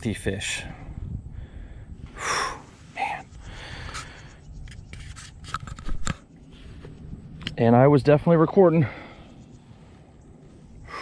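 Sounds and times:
man breathing out hard: 0:01.3 - 0:04.3, 0:10.8 - 0:11.0.

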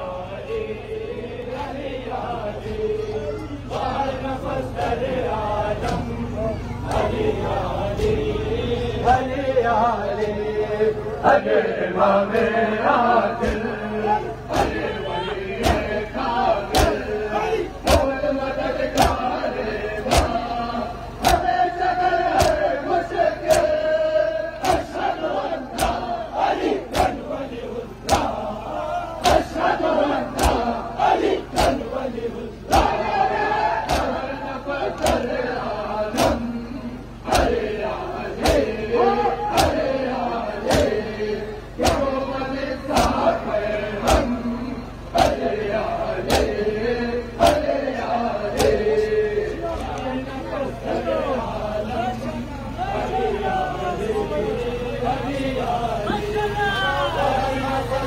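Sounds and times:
men chanting a lament: 0:00.0 - 0:58.0
men slapping chests in unison: 0:05.8 - 0:06.1, 0:14.5 - 0:14.8, 0:15.6 - 0:16.0, 0:16.7 - 0:17.1, 0:17.8 - 0:19.4, 0:20.0 - 0:20.6, 0:21.2 - 0:21.6, 0:22.2 - 0:23.9, 0:24.6 - 0:27.4, 0:28.0 - 0:28.5, 0:29.2 - 0:32.0, 0:32.6 - 0:33.2, 0:33.8 - 0:36.5, 0:37.2 - 0:37.7, 0:38.4 - 0:38.8, 0:39.5 - 0:41.0, 0:41.8 - 0:42.2, 0:42.9 - 0:43.3, 0:44.0 - 0:44.4, 0:45.1 - 0:45.5, 0:46.2 - 0:46.6, 0:47.4 - 0:47.9, 0:48.5 - 0:48.9
hands slapping chests in unison: 0:16.7 - 0:17.0, 0:17.9 - 0:18.1, 0:18.9 - 0:19.2, 0:20.0 - 0:20.4, 0:21.2 - 0:21.5, 0:22.3 - 0:22.7, 0:23.4 - 0:23.8, 0:24.6 - 0:25.0, 0:25.7 - 0:26.1, 0:26.8 - 0:27.3, 0:28.0 - 0:28.4, 0:30.3 - 0:30.7, 0:31.5 - 0:31.9, 0:33.8 - 0:34.3, 0:34.9 - 0:35.4, 0:38.4 - 0:38.7, 0:39.5 - 0:39.9, 0:40.6 - 0:41.0, 0:41.8 - 0:42.1, 0:42.9 - 0:43.2, 0:46.2 - 0:46.6, 0:47.4 - 0:47.7.

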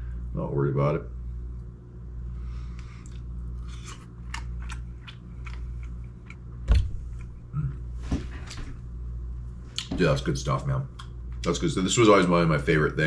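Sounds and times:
person chewing with mouth clicks: 0:02.8 - 0:06.4.

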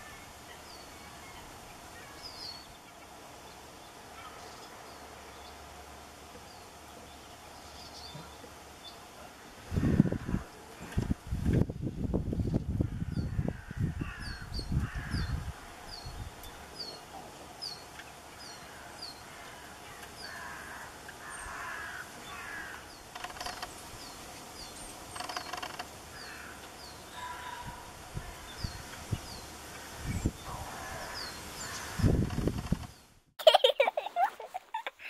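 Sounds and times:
wind rumble on microphone: 0:09.6 - 0:16.9, 0:27.5 - 0:33.2.

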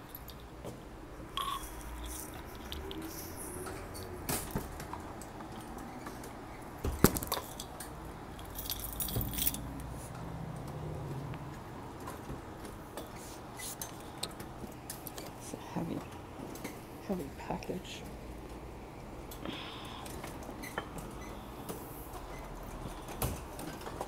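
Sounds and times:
keys jangling: 0:08.4 - 0:09.7.

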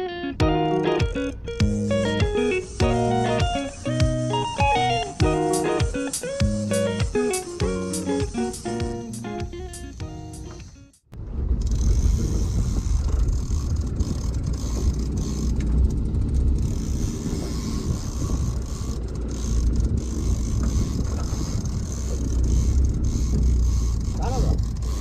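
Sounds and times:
outboard motor running: 0:00.4 - 0:25.0
wind noise: 0:01.5 - 0:25.0.

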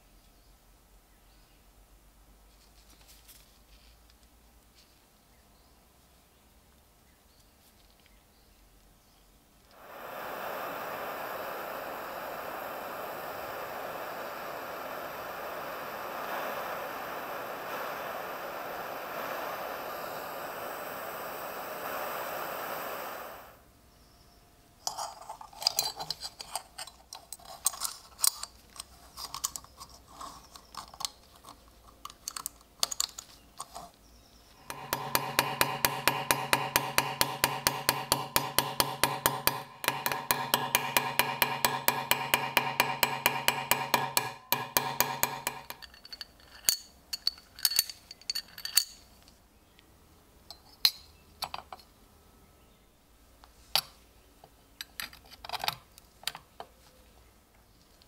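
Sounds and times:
steady hum: 0:09.7 - 0:24.0, 0:34.4 - 0:45.9
small metal parts clicking: 0:24.8 - 0:33.9, 0:45.6 - 0:49.4
hammer tapping on steel pin: 0:34.7 - 0:46.0.

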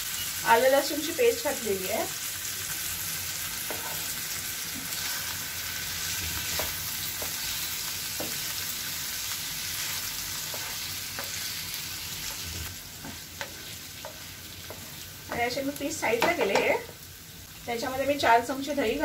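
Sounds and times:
chicken sizzling in hot oil: 0:00.0 - 0:19.0
spatula scraping and tapping pan: 0:03.6 - 0:04.1, 0:06.4 - 0:08.6, 0:09.8 - 0:17.0.

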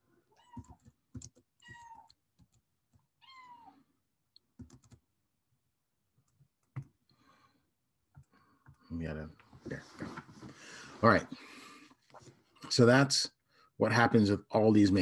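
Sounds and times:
cat meowing faintly: 0:03.2 - 0:03.8.

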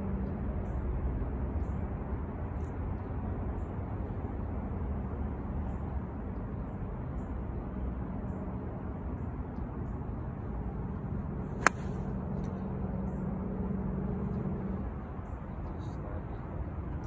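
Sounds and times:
steady low hum: 0:03.0 - 0:17.0
golf club striking ball: 0:11.6 - 0:12.1.

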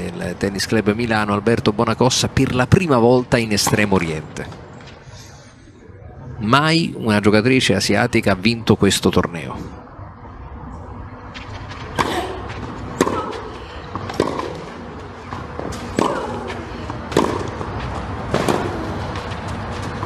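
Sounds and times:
rackets hitting tennis ball: 0:11.4 - 0:20.0.

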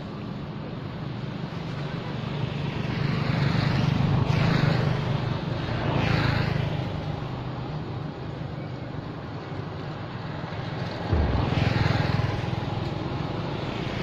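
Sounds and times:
vehicle engine hum: 0:07.6 - 0:14.0.

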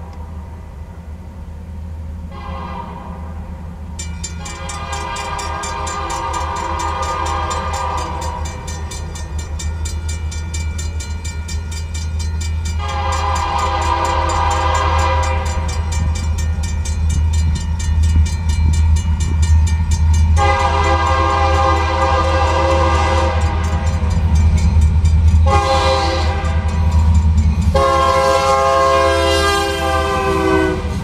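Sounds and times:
train horn blasts: 0:02.3 - 0:03.5, 0:04.3 - 0:09.0, 0:12.6 - 0:16.2, 0:20.3 - 0:24.2, 0:25.4 - 0:27.1, 0:27.7 - 0:31.0
crossing warning bell ringing: 0:03.8 - 0:31.0.

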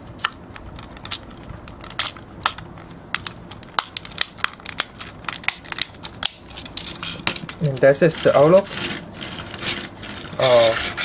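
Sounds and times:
plastic toy parts clicking: 0:00.2 - 0:07.9.

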